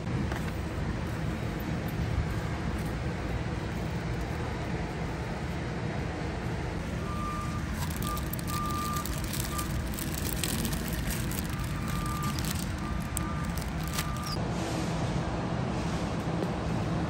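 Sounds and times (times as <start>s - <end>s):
plastic bag crinkling: 7.4s - 14.4s
electronic beeps: 11.6s - 14.4s.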